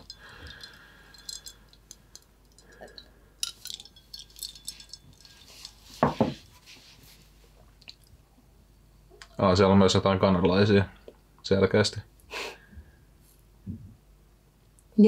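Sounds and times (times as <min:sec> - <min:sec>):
drinking glass clinking: 0:00.0 - 0:06.4
glass knocking on a table: 0:06.0 - 0:06.4.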